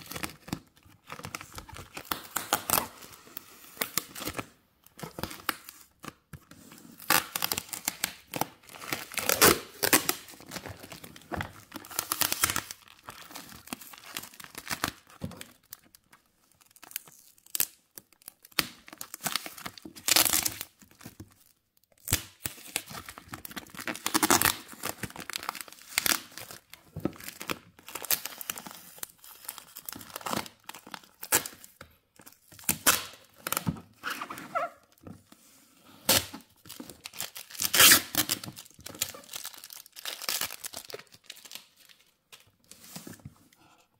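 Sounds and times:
packing tape ripping: 7.0 - 10.4, 37.1 - 41.0
plastic crinkling: 36.3 - 42.6.

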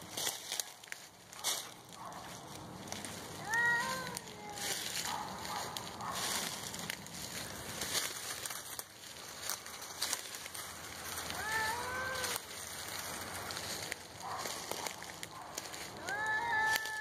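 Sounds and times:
leaf litter crackling underfoot: 0.0 - 17.0
cat yowling: 3.4 - 5.0, 11.4 - 12.4, 16.0 - 17.0.

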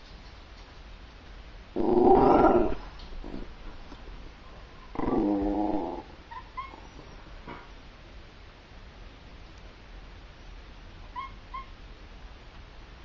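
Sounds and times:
dog whining grumble: 1.8 - 3.6, 4.9 - 7.0.

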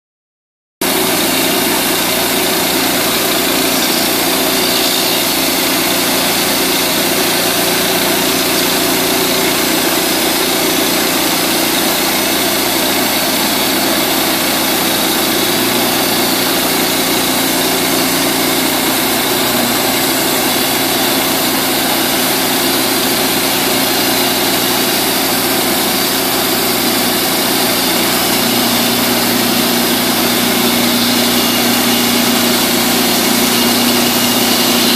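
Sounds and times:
single-cylinder engine running: 0.8 - 34.9.

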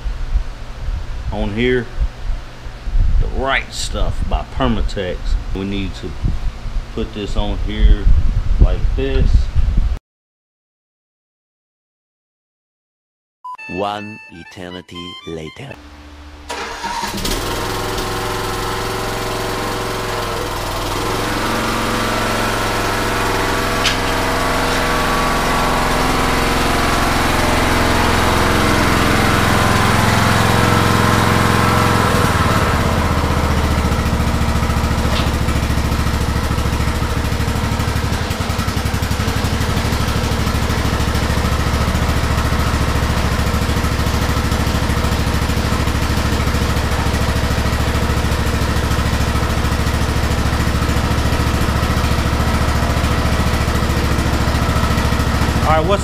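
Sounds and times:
riding lawn mower engine: 15.8 - 56.0.

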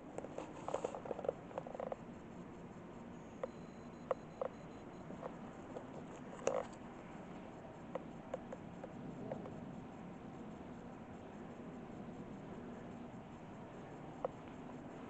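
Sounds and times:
faint small clicks: 3.4 - 4.6.

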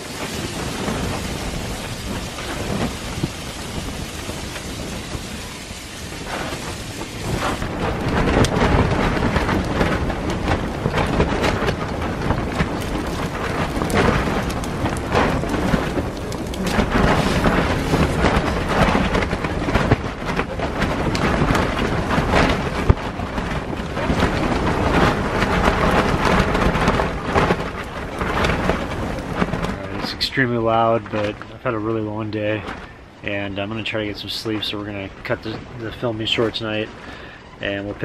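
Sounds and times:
strong wind gusting: 0.0 - 38.0
tent fabric snapping and shaking: 6.3 - 30.5.

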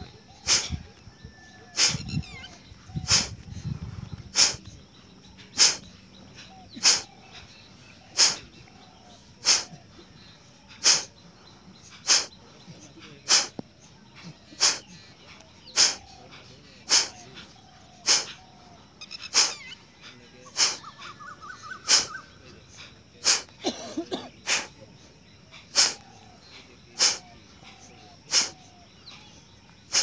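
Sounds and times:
forceful breath puffs through nose: 0.4 - 1.0, 1.6 - 4.7, 5.5 - 7.5, 8.1 - 18.4, 19.2 - 21.1, 21.7 - 23.6, 24.4 - 24.8, 25.5 - 26.2, 27.0 - 30.0.

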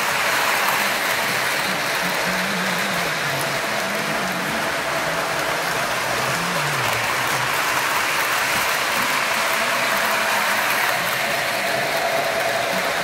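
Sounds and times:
model train rolling on track: 0.0 - 13.0.

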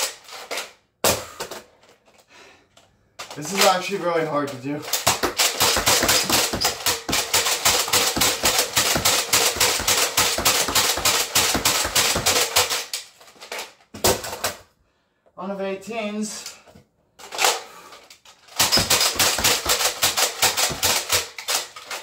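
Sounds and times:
toy blaster pumping and firing: 4.9 - 13.0, 18.5 - 22.0.

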